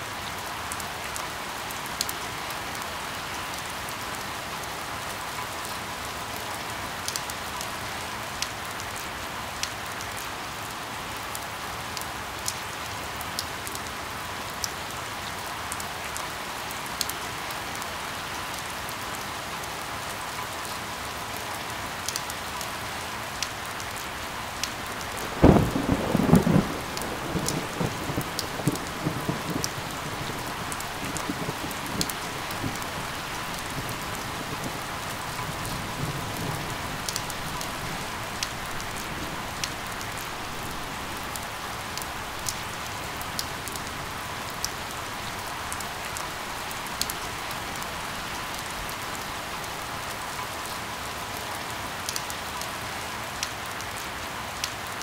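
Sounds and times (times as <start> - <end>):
steady rain falling: 0.0 - 55.0
thunderclap rumbling: 24.9 - 41.0.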